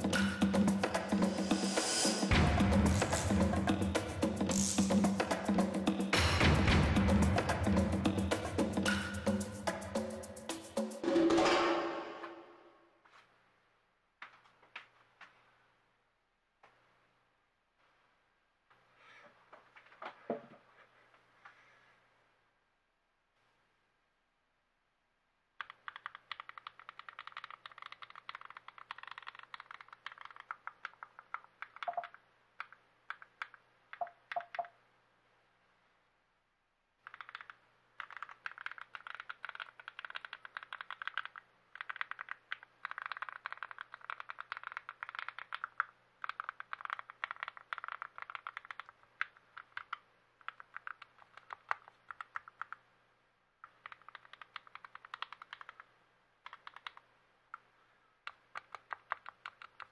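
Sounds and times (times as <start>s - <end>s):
fast keyboard typing: 25.6s - 34.7s, 37.0s - 52.8s, 53.6s - 57.0s, 58.2s - 59.9s.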